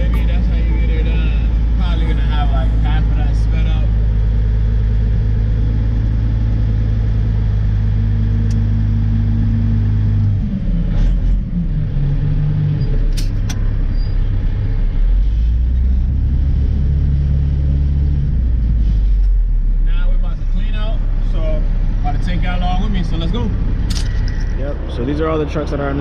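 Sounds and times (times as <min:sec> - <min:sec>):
diesel truck engine running: 0:00.0 - 0:26.0.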